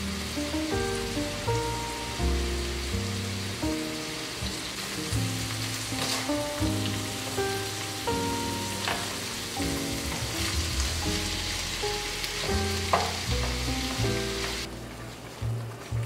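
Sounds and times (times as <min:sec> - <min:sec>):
soft background music: 0:00.0 - 0:16.0
vegetables sizzling in frying pan: 0:00.0 - 0:16.0
spatula knocking pan: 0:12.4 - 0:13.7.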